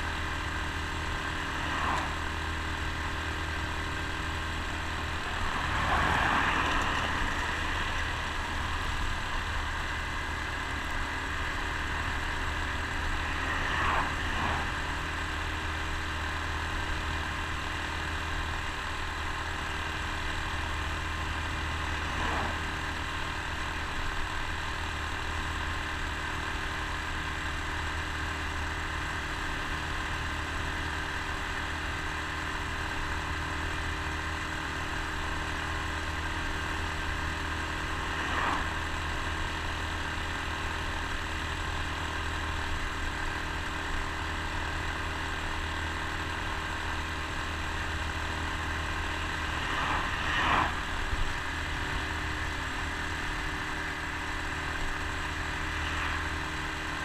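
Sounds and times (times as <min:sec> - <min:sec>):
road and wind noise: 0:00.0 - 0:57.0.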